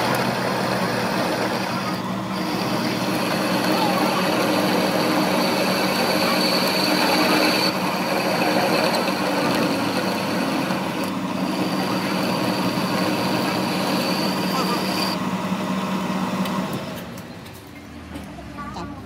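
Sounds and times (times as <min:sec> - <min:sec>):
high thin cutting whine: 0:00.0 - 0:15.3
lathe motor hum: 0:00.0 - 0:17.2.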